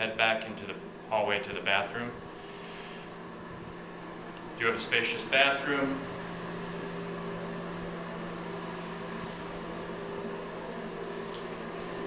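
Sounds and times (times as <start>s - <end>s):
ventilation fan humming: 0.0s - 12.0s.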